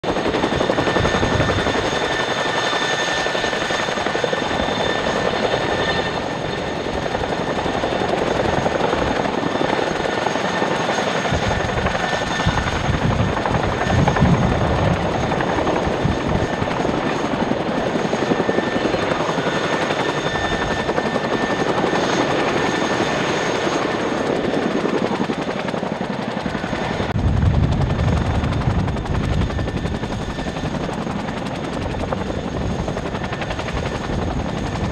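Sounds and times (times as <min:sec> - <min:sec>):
helicopter rotor noise: 0:00.0 - 0:34.9
turbine engine whine: 0:00.1 - 0:34.9
low rumble: 0:27.2 - 0:29.4.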